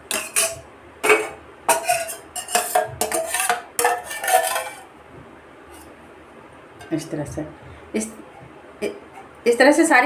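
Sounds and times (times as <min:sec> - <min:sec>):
utensils scraping steel plate: 0:00.1 - 0:04.9.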